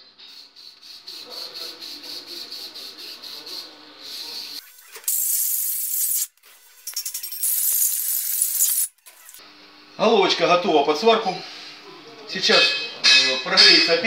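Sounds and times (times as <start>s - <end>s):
aerosol can hiss: 0.4s - 6.3s, 7.4s - 8.9s.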